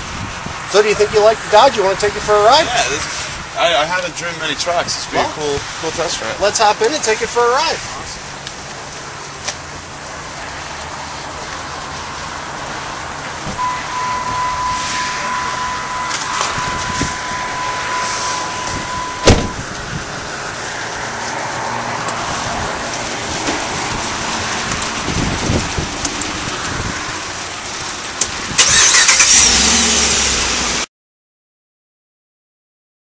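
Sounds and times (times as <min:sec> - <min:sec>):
outdoor noise: 0:00.0 - 0:30.9
truck engine starting and running: 0:00.0 - 0:30.9
sharp thump: 0:13.4 - 0:13.6, 0:15.2 - 0:19.6
steady high tone: 0:13.6 - 0:20.9.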